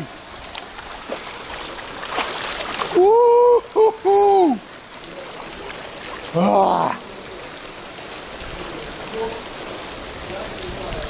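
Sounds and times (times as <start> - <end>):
heavy rain on pool water: 0.0 - 11.0
man yelping: 3.0 - 4.6.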